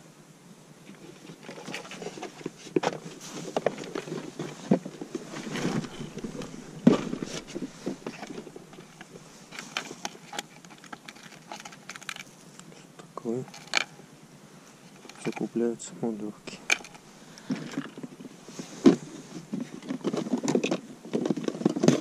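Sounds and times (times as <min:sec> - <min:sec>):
gear handling clicks and scraping: 0:01.0 - 0:14.0, 0:14.9 - 0:15.7, 0:16.4 - 0:22.0.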